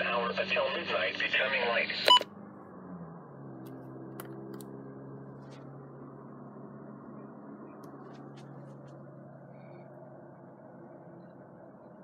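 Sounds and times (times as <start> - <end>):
steady low hum: 5.2 - 12.0.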